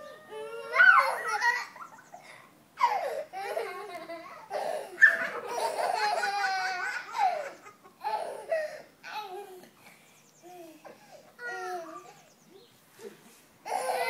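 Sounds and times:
young child laughing: 0:00.7 - 0:09.7.

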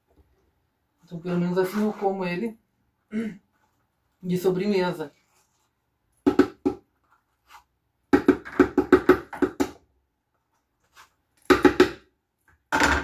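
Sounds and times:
knocking on plastic blender jar: 0:06.3 - 0:06.8, 0:08.1 - 0:09.8.

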